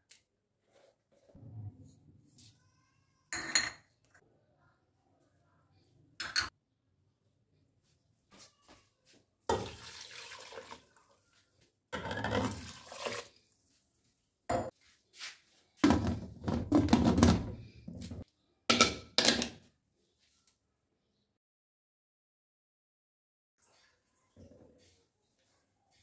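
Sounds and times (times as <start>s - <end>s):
water pouring and splashing: 9.5s - 11.2s, 12.3s - 13.6s.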